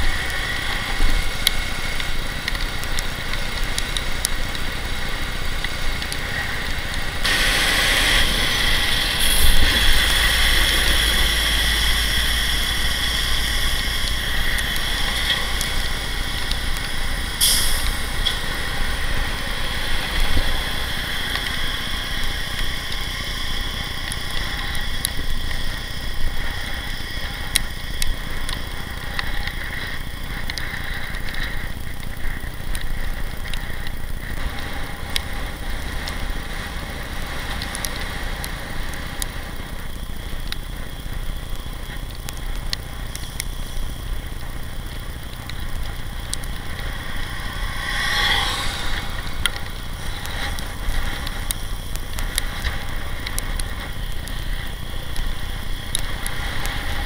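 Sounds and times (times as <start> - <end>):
passing traffic rumble: 0.0 - 57.0
wind rushing: 45.7 - 51.5.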